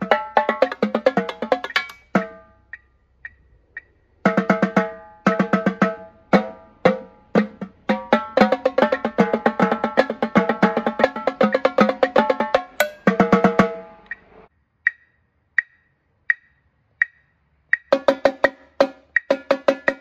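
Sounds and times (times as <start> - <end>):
metronome clicking: 0.0 - 5.1, 8.9 - 20.0
marching tenor drums: 4.2 - 14.0.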